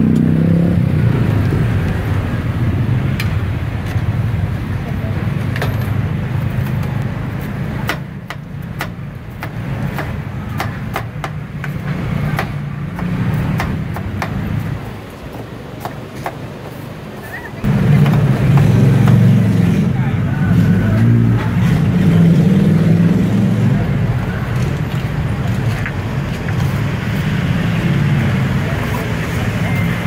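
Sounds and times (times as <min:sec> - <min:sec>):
steady low rumble: 0:00.0 - 0:05.5.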